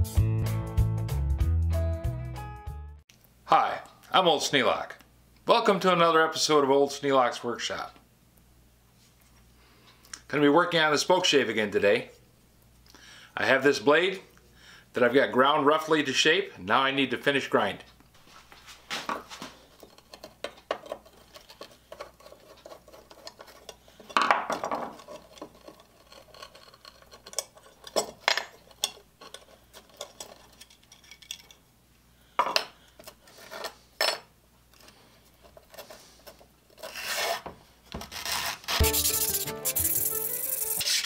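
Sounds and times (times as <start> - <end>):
blade rubbing on sandpaper: 36.8 - 41.0.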